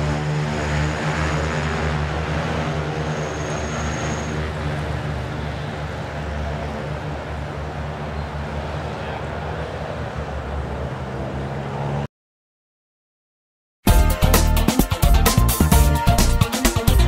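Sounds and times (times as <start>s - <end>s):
propeller hum: 0.0s - 12.1s.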